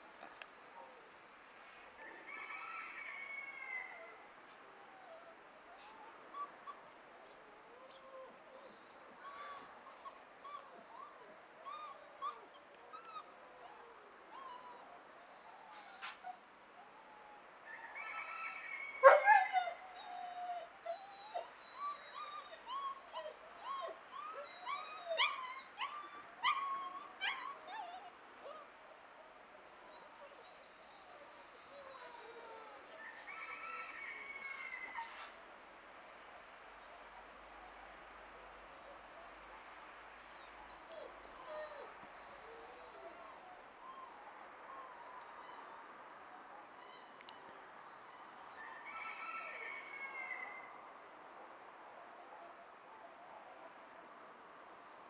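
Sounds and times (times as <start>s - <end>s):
puppy whining and yelping: 4.0s - 17.5s, 19.0s - 28.7s, 29.6s - 35.4s, 40.2s - 45.6s.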